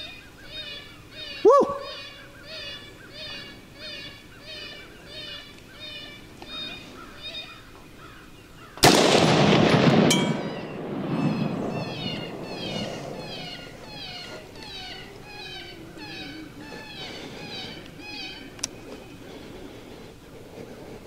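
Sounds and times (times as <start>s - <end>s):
coyote yelping: 0.0s - 7.7s, 10.4s - 18.6s
rifle shot echo: 8.8s - 14.0s.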